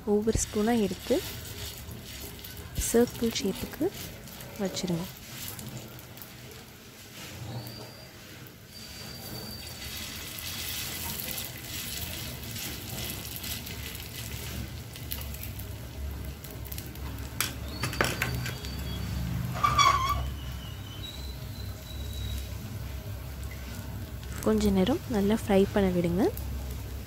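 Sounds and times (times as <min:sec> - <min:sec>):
patties sizzling in oil: 0:00.0 - 0:27.0
short high squeak: 0:07.4 - 0:10.1, 0:17.8 - 0:22.5.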